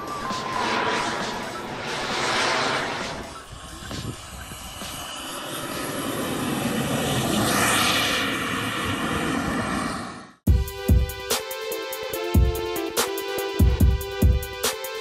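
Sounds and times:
model jet turbine rushing: 0:00.0 - 0:10.4.

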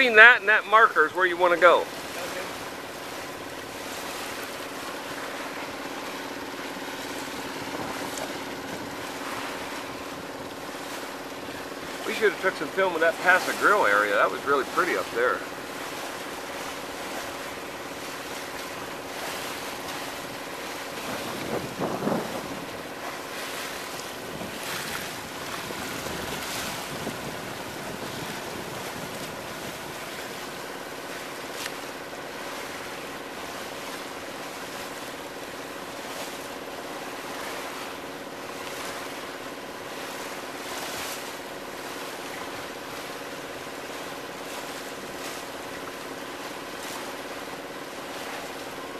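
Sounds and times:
water rushing along hull: 0:00.0 - 0:48.9
water splashes: 0:00.0 - 0:48.9
wind buffeting microphone: 0:21.0 - 0:30.4.

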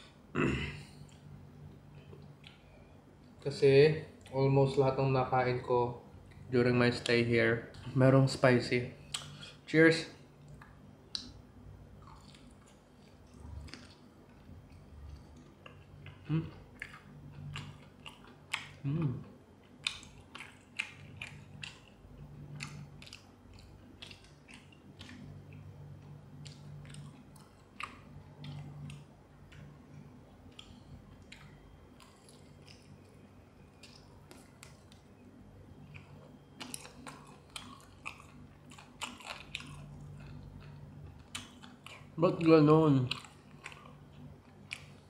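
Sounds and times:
person chewing crispy chicken: 0:11.9 - 0:35.1, 0:35.8 - 0:45.0.

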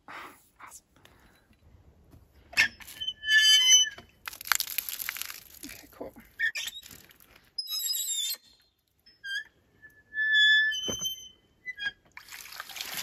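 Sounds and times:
hand water pump squeaking: 0:02.6 - 0:04.1, 0:06.4 - 0:12.2.

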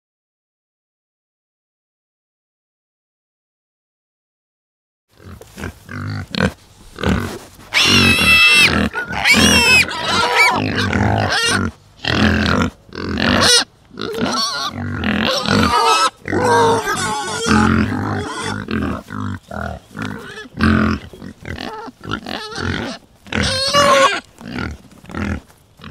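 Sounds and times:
pigs grunting: 0:05.1 - 0:25.9
pigs squealing: 0:05.2 - 0:25.9.

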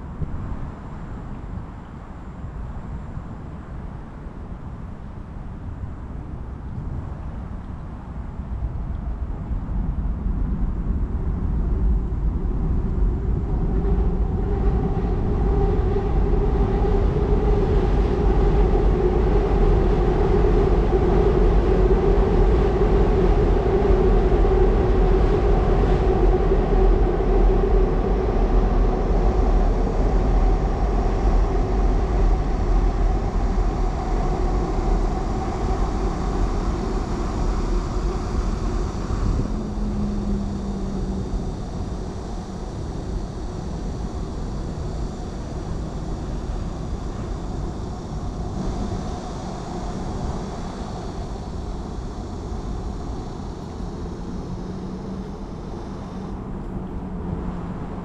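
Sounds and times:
train rumbling over bridge: 0:11.2 - 0:58.0.

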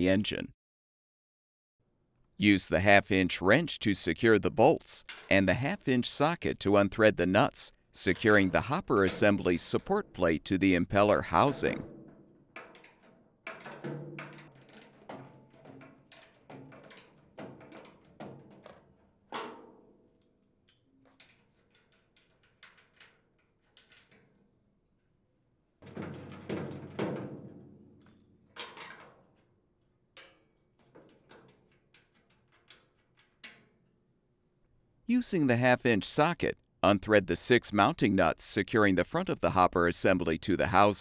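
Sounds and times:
metal clatter: 0:11.2 - 0:20.3, 0:30.2 - 0:33.9.

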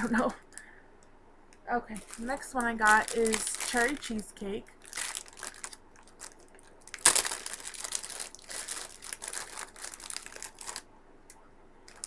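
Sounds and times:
plastic bag crinkling: 0:01.9 - 0:10.9.

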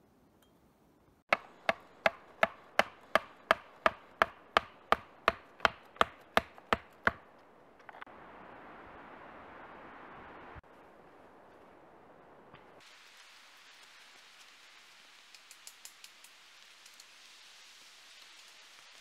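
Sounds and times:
steady outdoor hiss: 0:00.0 - 0:19.0
axe chopping wood: 0:01.3 - 0:07.3.

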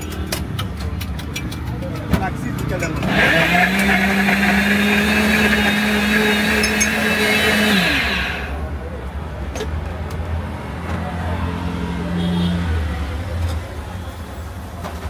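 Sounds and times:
blender motor running: 0:03.0 - 0:08.6.

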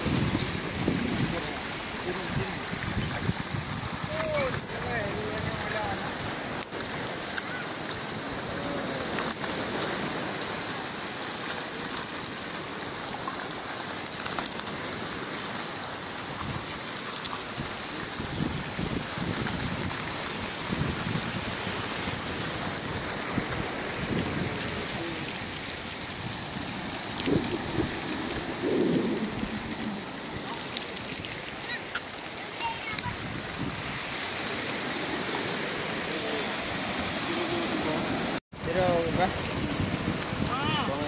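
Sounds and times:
water hissing: 0:00.0 - 0:41.0
low splashes: 0:17.7 - 0:40.9.

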